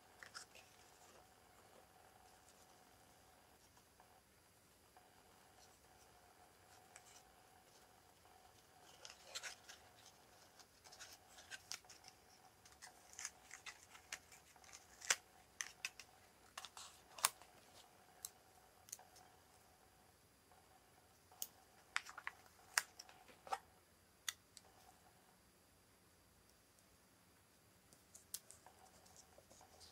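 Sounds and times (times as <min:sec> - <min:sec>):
faint steady hum: 0:00.0 - 0:29.9
paper and ribbon handling: 0:08.8 - 0:17.7.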